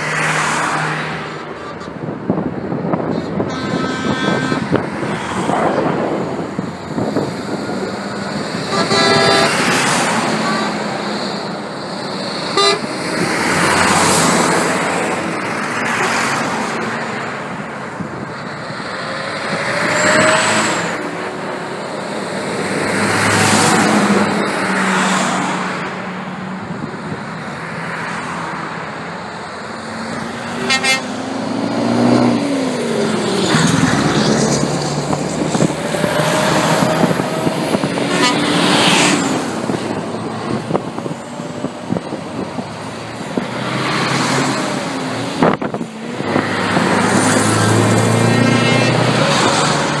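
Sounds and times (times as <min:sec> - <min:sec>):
heavy trucks passing: 0:00.0 - 0:50.0
truck horns tooting: 0:01.4 - 0:02.2, 0:03.0 - 0:05.0, 0:07.6 - 0:11.6, 0:12.3 - 0:14.6, 0:15.8 - 0:16.5, 0:30.1 - 0:31.3, 0:35.4 - 0:41.1, 0:47.6 - 0:49.6.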